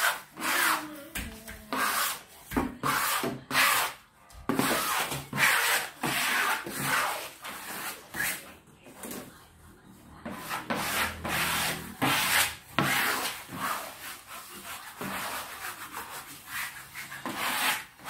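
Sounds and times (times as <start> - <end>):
brush sweeping over wallpaper: 10.3 - 18.0.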